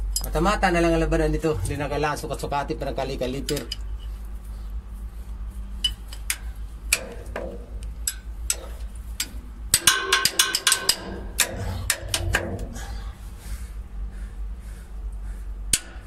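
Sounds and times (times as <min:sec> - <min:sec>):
steady low hum: 0:00.0 - 0:16.0
wrench clinking on metal bolts: 0:05.8 - 0:12.4
ringing metallic clicks: 0:08.0 - 0:12.6.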